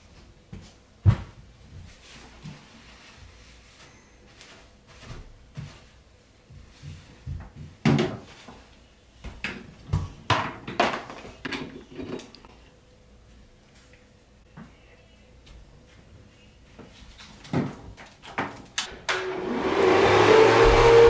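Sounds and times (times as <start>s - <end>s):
hair dryer knocking on counter: 20.2s - 21.0s.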